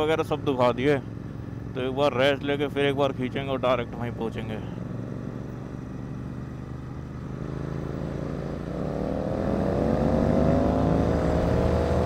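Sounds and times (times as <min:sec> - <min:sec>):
motorcycle engine accelerating: 0:04.8 - 0:12.0.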